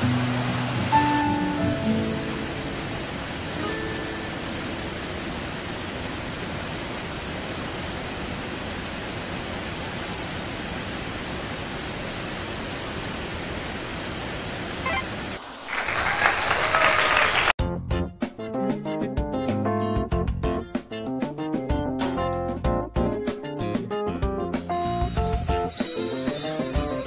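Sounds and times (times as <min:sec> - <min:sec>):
acoustic guitar music: 0:00.0 - 0:05.3
waterfall rushing: 0:00.0 - 0:13.1.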